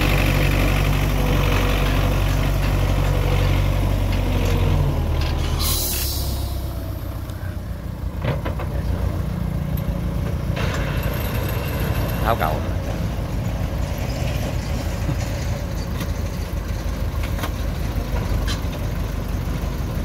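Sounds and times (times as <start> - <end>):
tractor diesel engine idling: 0.0 - 20.0
hiss of air: 5.5 - 6.8.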